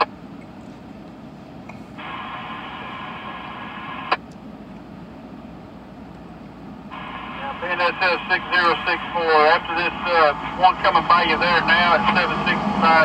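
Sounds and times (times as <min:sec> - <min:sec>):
low steady rumble: 0:00.0 - 0:13.0
radio hiss: 0:01.8 - 0:04.2, 0:06.9 - 0:13.0.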